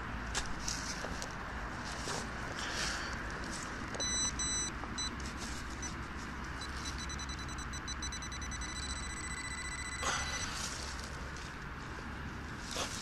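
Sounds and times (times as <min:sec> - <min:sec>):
metal detector pinpointer beeping: 0:04.0 - 0:05.2, 0:05.8 - 0:06.0, 0:06.6 - 0:10.6.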